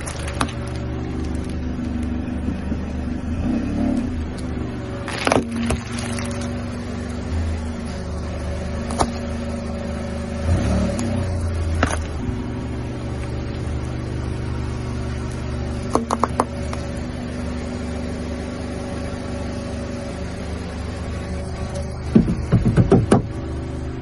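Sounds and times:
hard candy cracking under tyre: 0.0s - 2.2s, 4.3s - 6.6s, 11.8s - 12.2s
car engine idling: 0.0s - 24.0s.

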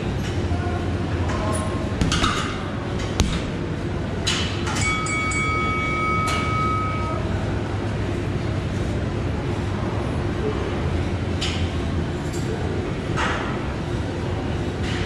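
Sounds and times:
punches thudding into heavy bag: 2.0s - 3.7s.

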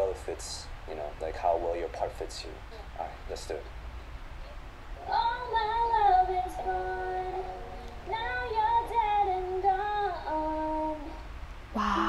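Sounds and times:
woman singing solo: 11.8s - 12.0s.

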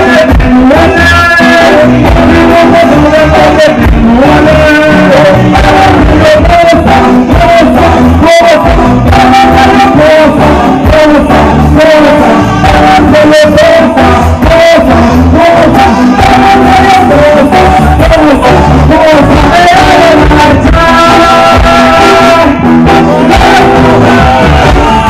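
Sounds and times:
band with drum beat and bass: 0.0s - 25.0s
man singing into microphone: 0.0s - 25.0s.

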